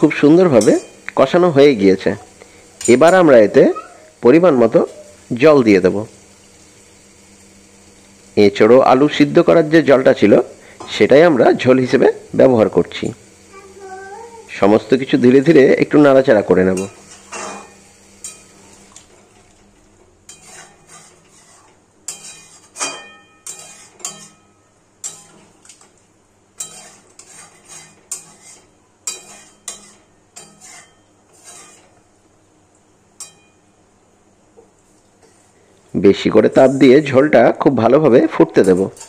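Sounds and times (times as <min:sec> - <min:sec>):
metal spatula scraping metal pan: 0:16.6 - 0:18.8, 0:20.3 - 0:25.6, 0:26.6 - 0:32.0.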